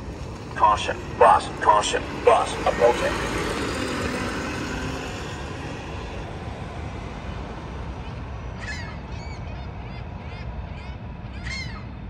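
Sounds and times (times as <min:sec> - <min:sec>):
bus engine pulling away: 0:00.0 - 0:08.9
road noise: 0:00.0 - 0:12.0
bird calling: 0:08.0 - 0:11.9.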